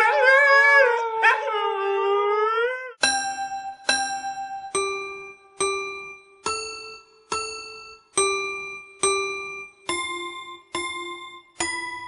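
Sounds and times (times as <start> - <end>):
bell-like keyboard notes: 3.0 - 12.0.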